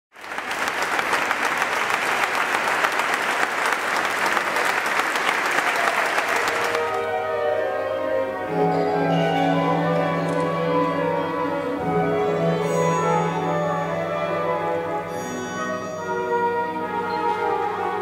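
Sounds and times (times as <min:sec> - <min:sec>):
audience applauding: 0:00.1 - 0:07.2
sustained instrumental notes: 0:06.7 - 0:18.0.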